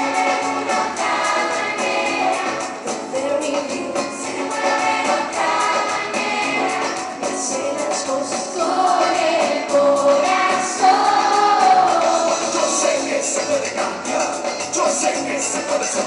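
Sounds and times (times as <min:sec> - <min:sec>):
choir singing: 0:00.0 - 0:03.0, 0:04.0 - 0:13.9
woman singing lead: 0:00.0 - 0:13.3
pop band with steady beat: 0:00.0 - 0:16.0.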